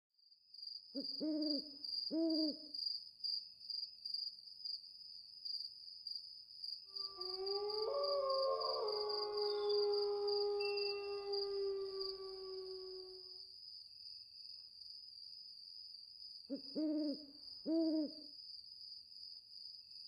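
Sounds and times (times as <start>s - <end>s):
crickets chirping: 0.3s - 20.0s
long wailing sliding tones: 7.0s - 13.2s
owl hooting: 7.0s - 13.2s, 16.5s - 18.2s.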